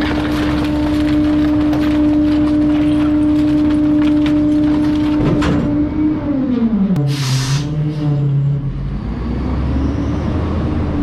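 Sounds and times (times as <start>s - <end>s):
wood cracking and snapping: 0.0s - 5.6s.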